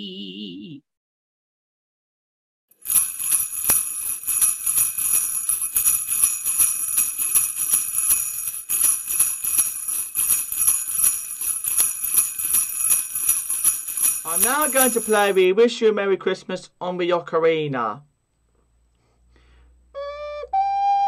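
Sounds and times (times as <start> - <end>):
sleigh bells jingling: 2.8 - 15.5.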